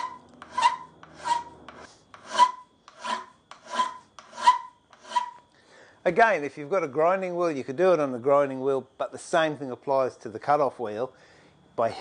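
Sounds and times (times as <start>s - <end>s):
file rasping on steel: 0.0s - 5.4s.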